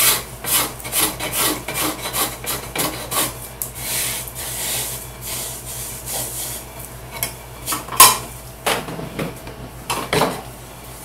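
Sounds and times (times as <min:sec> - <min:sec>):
scraper rasping on wood: 0:00.0 - 0:06.0.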